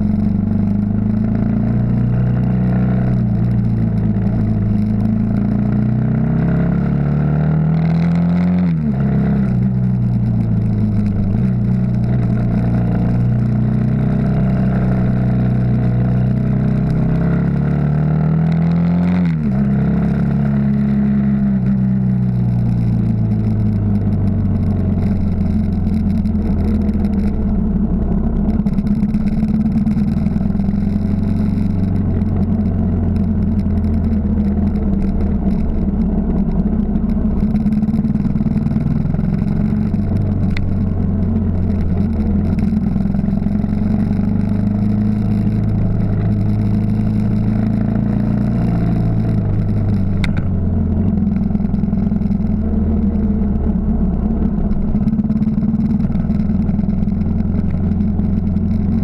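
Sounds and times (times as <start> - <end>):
motorcycle engine running: 0.0 - 59.0
sharp clicks: 18.4 - 59.0.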